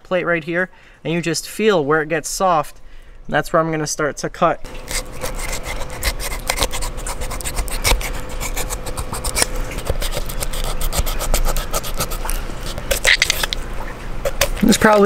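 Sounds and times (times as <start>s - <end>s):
knife scraping fish scales: 4.7s - 13.6s, 14.2s - 15.0s.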